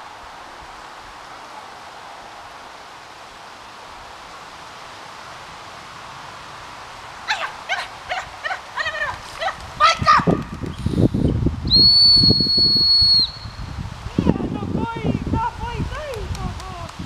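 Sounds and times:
outdoor background hiss: 0.0s - 17.0s
dog yelping: 7.3s - 9.6s.

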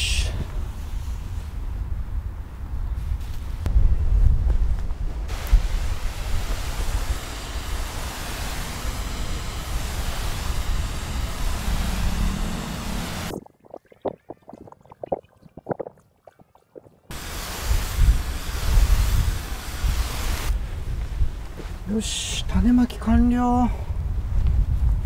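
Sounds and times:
wind buffeting microphone: 0.2s - 7.8s, 17.6s - 25.0s
hose spray nozzle hissing: 5.3s - 13.3s, 17.1s - 20.6s.

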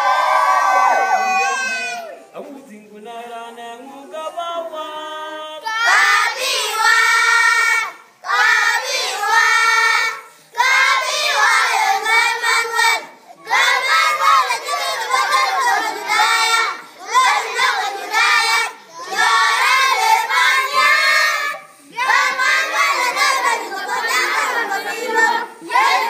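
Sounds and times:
children singing: 5.6s - 26.0s.

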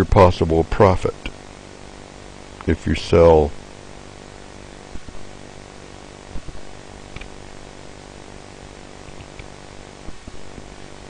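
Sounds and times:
electrical hum and hiss: 0.0s - 11.0s.

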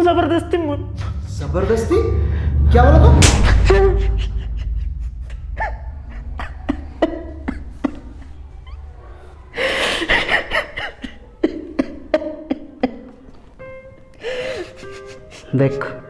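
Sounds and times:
young man sobbing: 3.7s - 13.2s, 14.1s - 15.6s.

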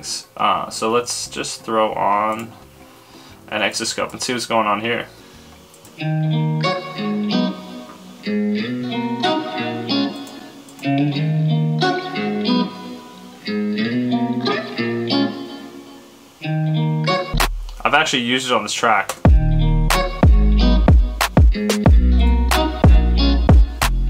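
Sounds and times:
looped guitar phrase: 6.0s - 24.0s.

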